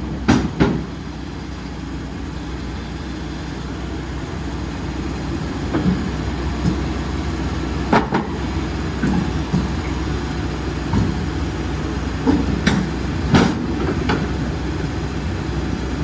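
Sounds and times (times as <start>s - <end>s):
steel tracks knocking on trailer: 0.0s - 1.1s, 5.6s - 7.0s, 10.8s - 11.4s, 12.2s - 14.5s
excavator diesel engine running: 0.0s - 16.0s.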